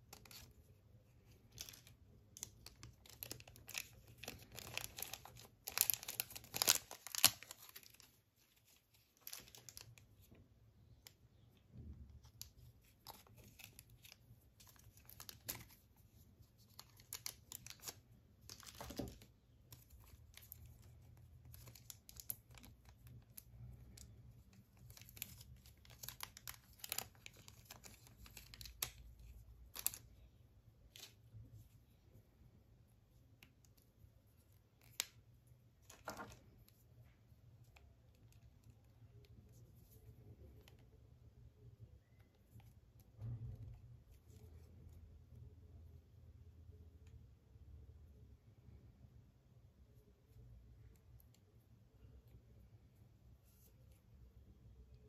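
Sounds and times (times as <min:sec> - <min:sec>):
plastic packaging crinkling: 0:00.0 - 0:10.4, 0:12.2 - 0:31.7.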